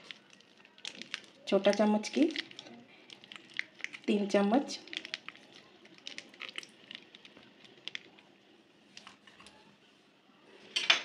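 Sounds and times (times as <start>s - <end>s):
yogurt spooned into bowl: 0.0s - 9.7s.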